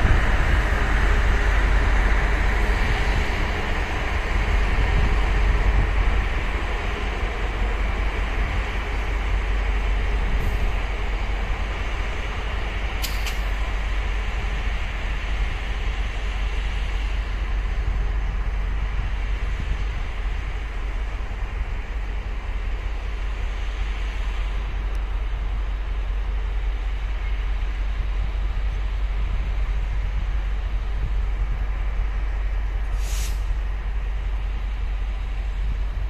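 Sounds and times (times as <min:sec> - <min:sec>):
locomotive low rumble: 0:00.0 - 0:36.0
sharp click: 0:13.0 - 0:13.5.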